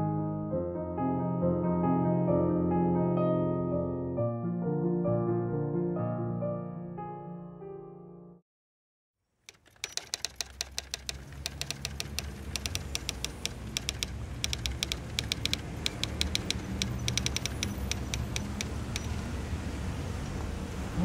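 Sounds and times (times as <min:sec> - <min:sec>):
typewriter keys clacking: 0:09.5 - 0:19.3.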